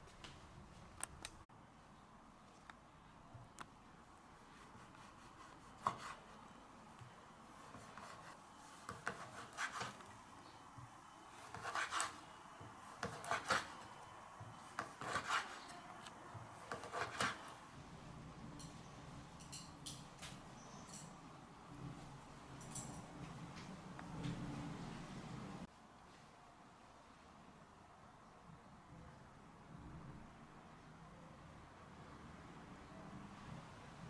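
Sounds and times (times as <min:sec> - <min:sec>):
knife slicing scrape: 0:07.7 - 0:10.0, 0:11.4 - 0:12.2, 0:13.0 - 0:13.8, 0:14.8 - 0:15.7, 0:16.7 - 0:17.5.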